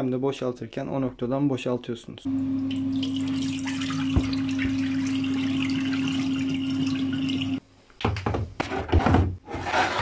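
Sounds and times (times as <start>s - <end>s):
water pouring into sink: 2.5s - 7.6s.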